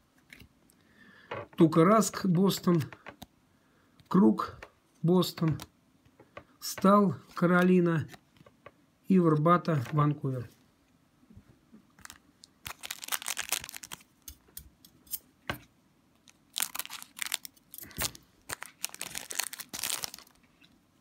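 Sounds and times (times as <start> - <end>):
card pack wrapper crinkling and tearing: 12.0 - 14.4, 16.2 - 20.7.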